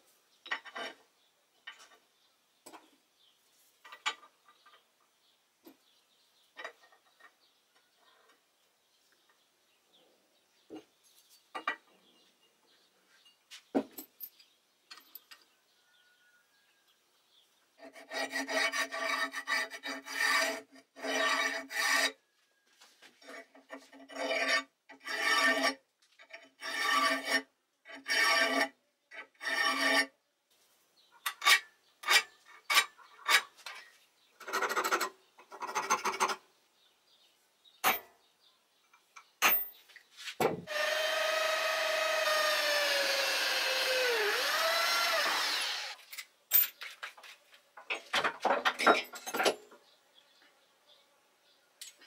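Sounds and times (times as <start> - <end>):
file rasping on steel: 17.8 - 22.2, 23.2 - 30.1, 42.0 - 46.0
power tool motor running: 40.7 - 46.0.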